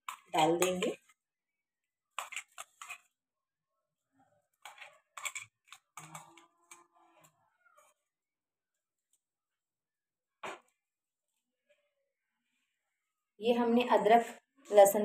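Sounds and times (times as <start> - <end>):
kitchen utensils clicking and scraping: 0.0 - 1.1, 2.1 - 3.2, 4.6 - 8.0.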